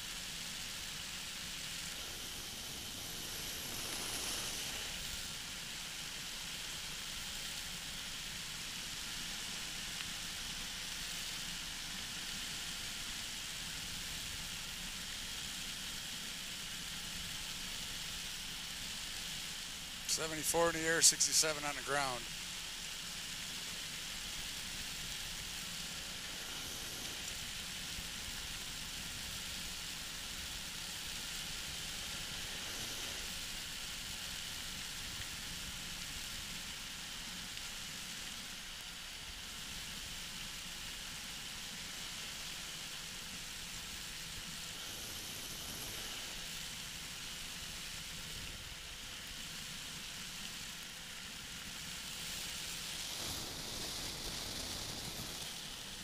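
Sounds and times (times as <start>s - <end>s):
faint steady hum: 0.0s - 56.0s
wind and engine hiss: 0.0s - 56.0s.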